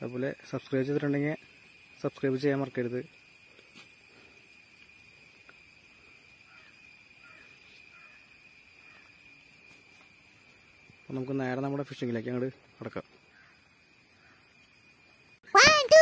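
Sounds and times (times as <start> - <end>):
high-pitched insect drone: 0.0 - 15.8
faint bird chirps: 5.2 - 9.5, 12.2 - 15.8.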